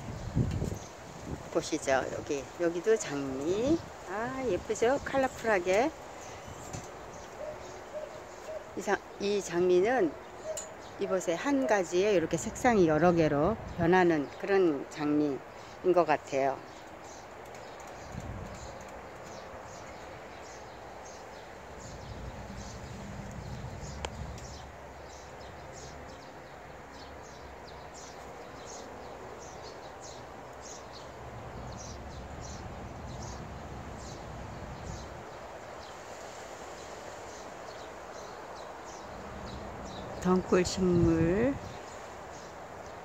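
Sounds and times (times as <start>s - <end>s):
small birds chirping: 0.0s - 43.0s
low outdoor rumble: 21.6s - 25.7s.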